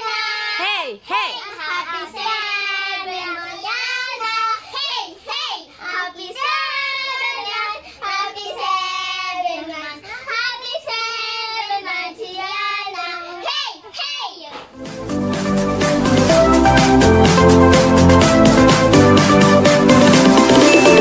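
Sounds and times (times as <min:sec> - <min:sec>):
children singing birthday song: 0:00.0 - 0:14.7.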